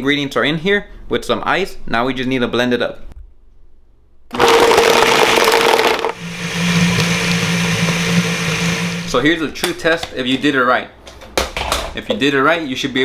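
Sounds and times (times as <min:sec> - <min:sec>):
blender grinding ice: 0:04.3 - 0:09.2.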